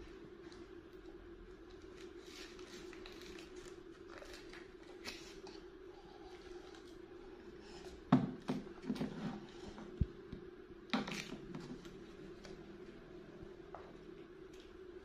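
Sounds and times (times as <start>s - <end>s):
background hum: 0.0s - 15.0s.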